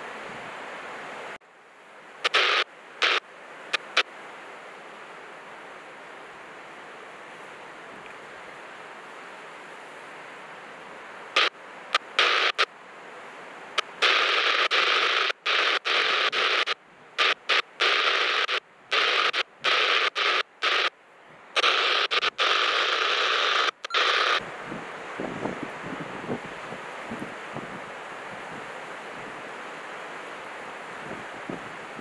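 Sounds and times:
surf: 0:00.0 - 0:32.0
wind: 0:00.0 - 0:32.0
radio static bursts: 0:02.2 - 0:04.1, 0:11.4 - 0:12.7, 0:13.8 - 0:20.9, 0:21.5 - 0:24.4.

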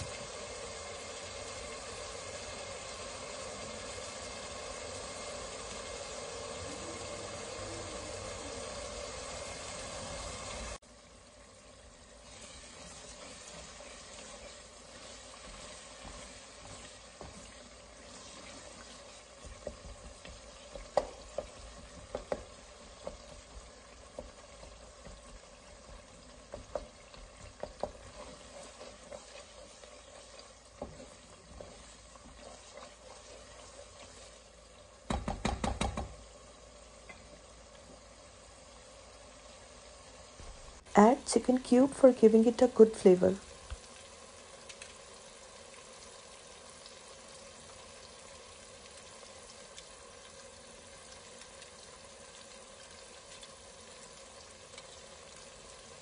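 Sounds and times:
vegetables sizzling in oil: 0:00.0 - 0:56.0
wooden spatula stirring and tapping: 0:12.4 - 0:36.2.

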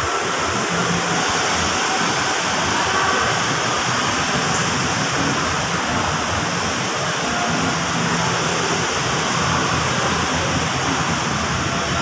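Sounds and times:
steady rushing ambient roar: 0:00.0 - 0:12.0.

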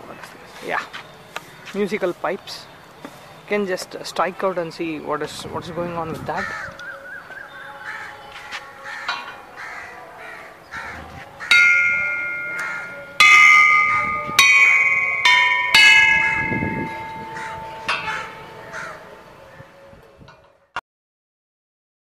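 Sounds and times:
metal pipes struck ringing: 0:09.0 - 0:09.5, 0:11.4 - 0:19.0.

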